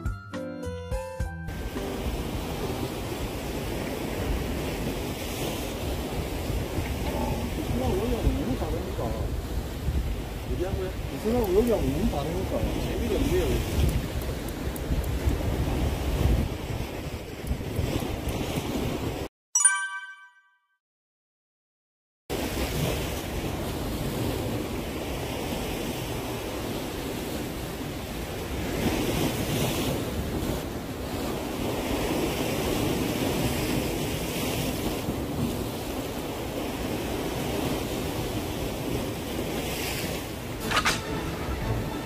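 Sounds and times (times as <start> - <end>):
waves washing against concrete: 1.6 - 19.3, 22.3 - 42.0
wind buffeting microphone: 2.0 - 19.3.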